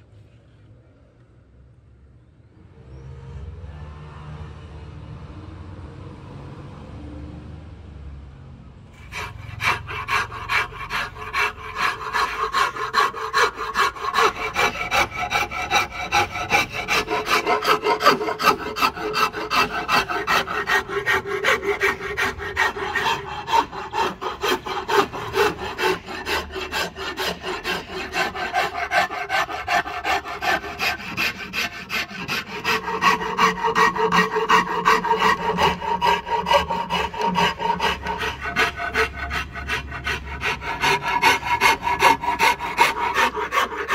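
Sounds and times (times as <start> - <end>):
hand tool rasping on wood: 9.0 - 43.9.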